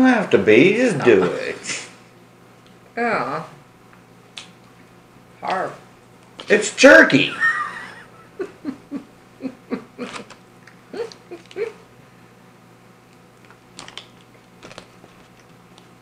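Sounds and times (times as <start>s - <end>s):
person chewing jerky: 10.0s - 11.9s, 13.1s - 16.0s.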